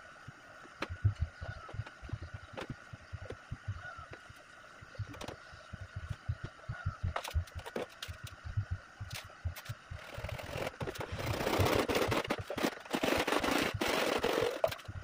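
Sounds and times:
plastic pipes clattering: 7.1 - 8.4, 9.6 - 15.0
rough rubbing noise: 9.6 - 15.0.

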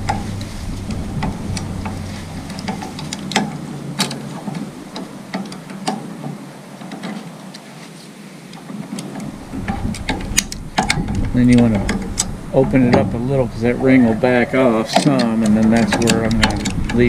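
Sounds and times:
metal tool clicks and taps: 14.9 - 17.0.

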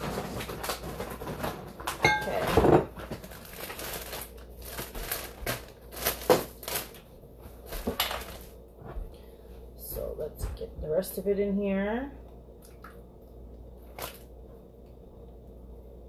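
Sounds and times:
plastic bag crinkling: 0.0 - 8.6, 13.8 - 14.3.

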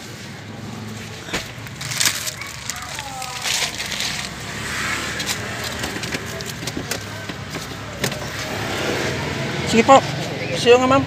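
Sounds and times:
idling engine hum: 0.0 - 11.0
clicks and knocks inside a car: 5.6 - 8.3.

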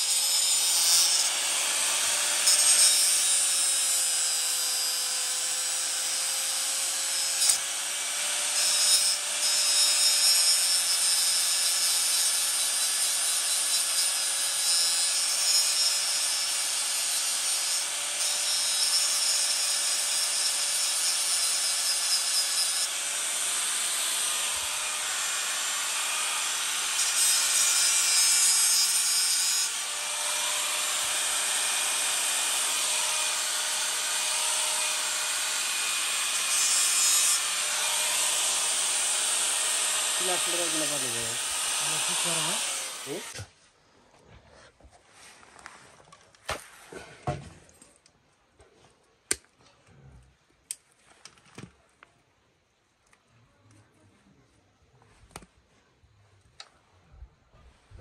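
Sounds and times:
power tool motor whine: 29.6 - 43.4
harsh hiss from the work: 38.7 - 43.4.

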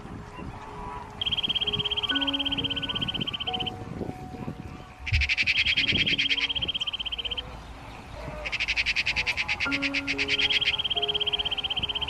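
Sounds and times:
high rapid pulsing trill: 5.0 - 7.3.

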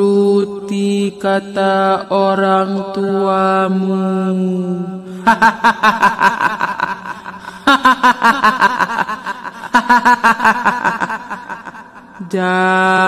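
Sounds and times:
shrill cackling laugh: 5.2 - 12.2.

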